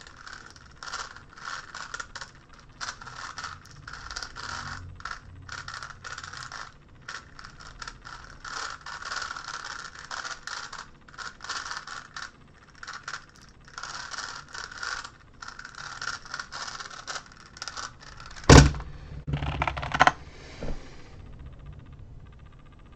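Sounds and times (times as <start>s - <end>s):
puzzle cube clicking and rattling: 0.0s - 20.2s
puzzle thumping down: 18.2s - 20.2s.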